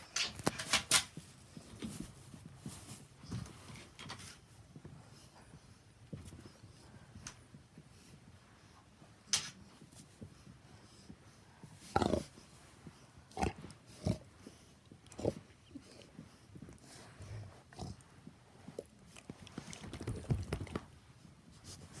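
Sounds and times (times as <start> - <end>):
dog grunting: 11.8 - 12.4.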